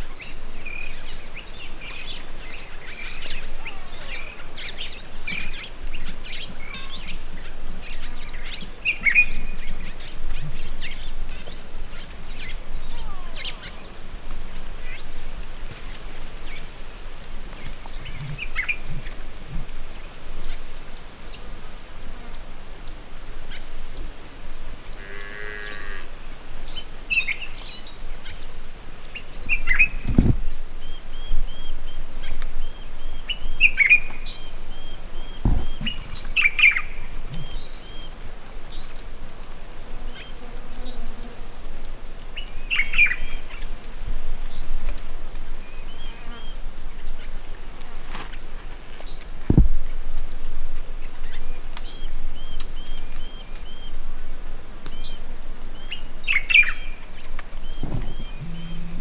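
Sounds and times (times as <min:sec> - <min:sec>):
birds chirping and whistling: 0:30.8 - 0:38.2, 0:57.6 - 0:59.0
low thumps: 0:35.3 - 0:36.2, 0:49.5 - 0:49.9, 0:57.6 - 0:59.0.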